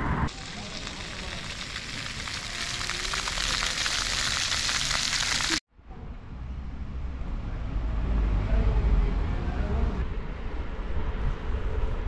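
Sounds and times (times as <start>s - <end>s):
fountain splashing on paving: 0.3s - 5.6s.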